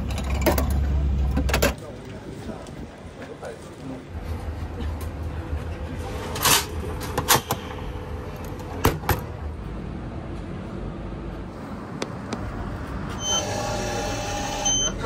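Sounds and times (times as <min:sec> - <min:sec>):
vending machine hum: 0:03.3 - 0:15.0.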